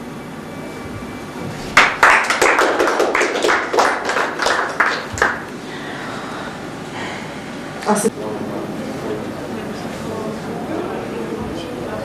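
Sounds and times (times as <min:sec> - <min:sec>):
small audience applauding: 0:01.6 - 0:05.7.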